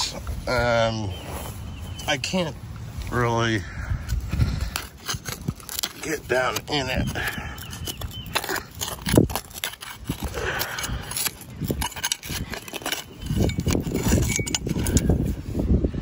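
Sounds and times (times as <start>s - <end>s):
shovel scraping dirt: 4.0s - 15.4s.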